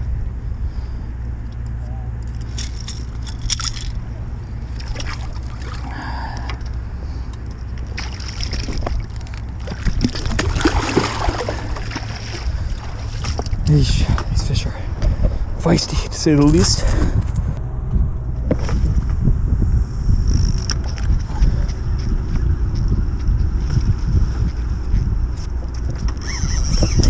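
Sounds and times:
steady low rumble: 0.0s - 27.0s
water sloshing against rocks: 4.6s - 6.8s, 7.7s - 14.6s.

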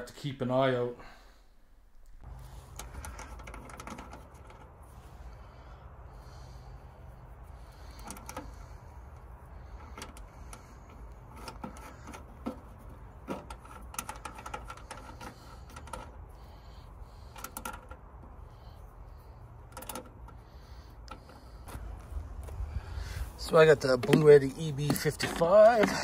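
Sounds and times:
metal terminals clicking and tapping: 2.1s - 4.8s, 7.8s - 18.4s, 19.4s - 21.8s
steady low rumble: 14.7s - 24.6s.

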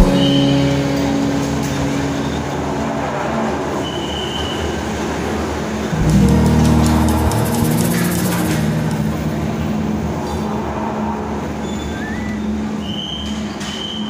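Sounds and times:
gondola machinery rumble and rattle: 4.8s - 12.9s.

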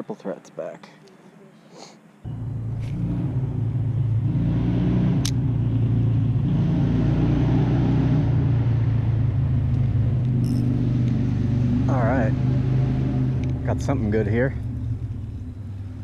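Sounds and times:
low rumble with hum: 2.3s - 6.5s, 8.2s - 16.0s.

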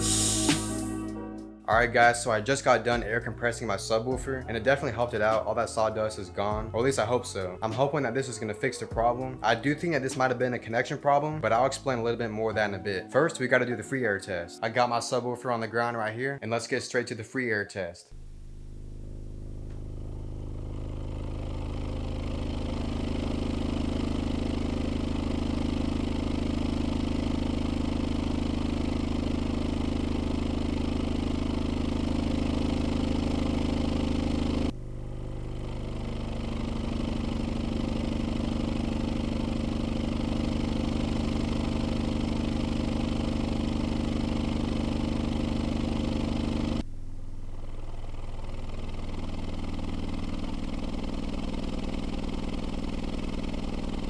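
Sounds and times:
deep buzzy subwoofer drone: 0.0s - 4.5s, 18.2s - 54.0s.

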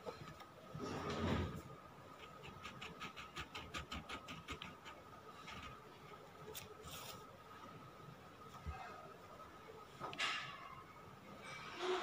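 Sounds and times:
pen scratching on paper: 2.2s - 5.9s.

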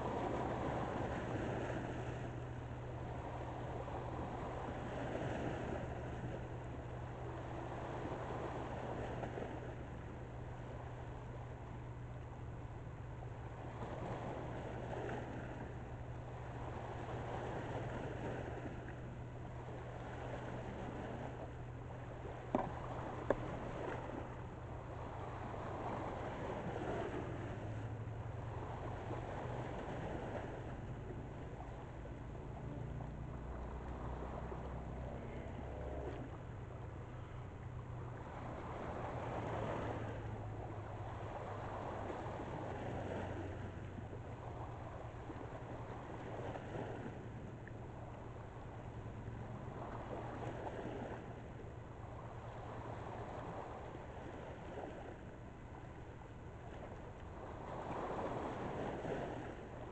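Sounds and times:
distant ship engines droning: 0.0s - 59.9s
river water rushing: 19.2s - 59.9s.

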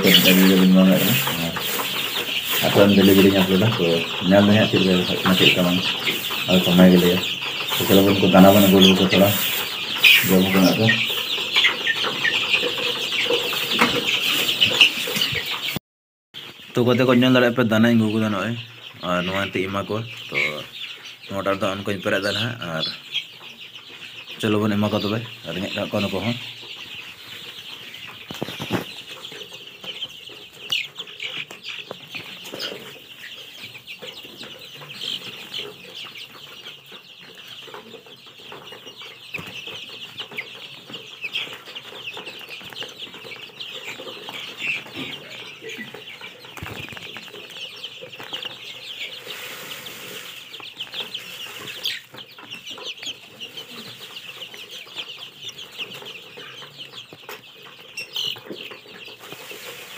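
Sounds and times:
chicks cheeping: 0.0s - 15.8s, 16.4s - 59.9s.

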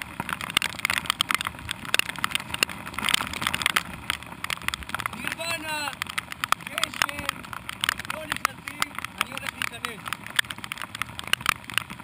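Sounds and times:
low wind rumble: 0.0s - 12.0s
raindrops ticking on camera housing: 0.0s - 12.0s.

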